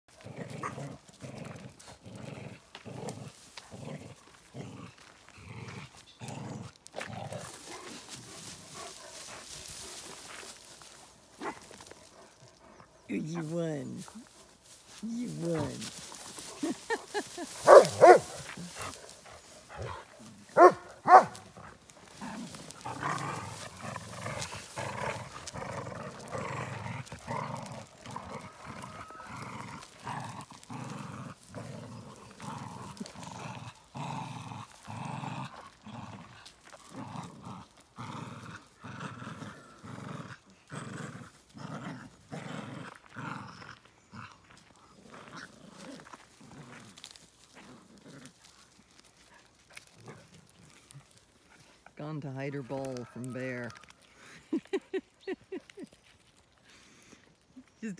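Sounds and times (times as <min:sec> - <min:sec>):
dogs play-growling: 0:00.1 - 0:13.1, 0:13.8 - 0:57.8
dogs barking: 0:17.6 - 0:18.5, 0:19.8 - 0:21.5.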